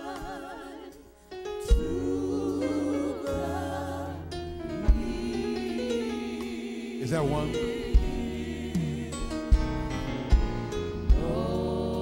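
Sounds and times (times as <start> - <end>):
gospel singing with instruments: 0.0 - 12.0
sharp low thumps: 4.7 - 5.5, 7.6 - 11.4.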